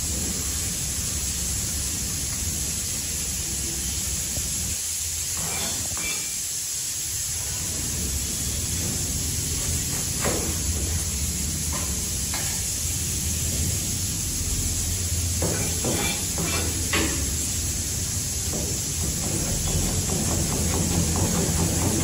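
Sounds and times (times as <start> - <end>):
steady hiss with low hum: 0.0 - 22.0
knife chopping on cutting board: 15.4 - 17.2.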